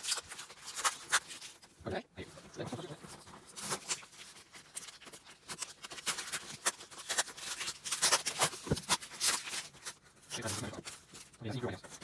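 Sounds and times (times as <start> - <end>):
packing tape ripping off: 0.0 - 1.6, 3.5 - 11.3.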